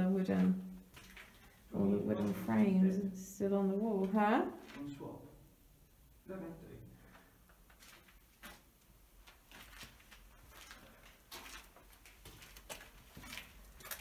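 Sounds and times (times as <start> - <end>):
footsteps on gritty concrete: 9.3 - 14.0.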